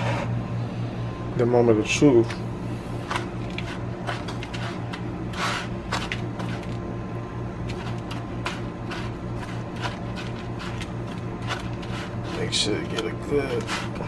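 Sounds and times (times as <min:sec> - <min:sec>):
steady low hum: 0:00.0 - 0:14.0
fork scraping plastic bowl: 0:03.1 - 0:06.8, 0:07.7 - 0:14.0.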